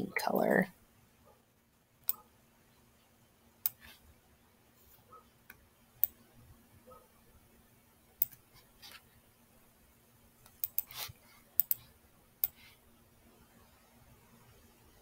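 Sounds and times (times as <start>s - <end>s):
faint steady hum: 0.0s - 15.0s
mouse and keyboard clicks: 10.4s - 11.8s.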